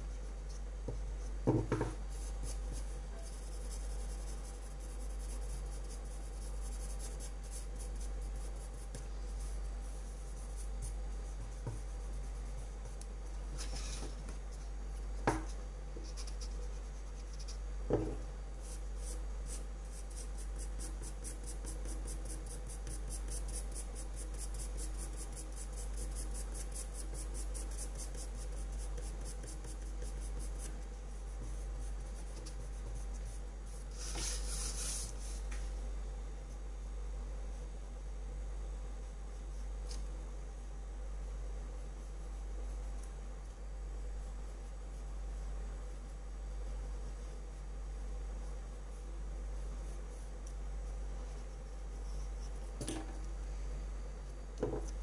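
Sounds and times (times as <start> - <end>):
pencil scratching on paper: 2.1 - 14.7, 16.0 - 17.6, 18.6 - 35.1.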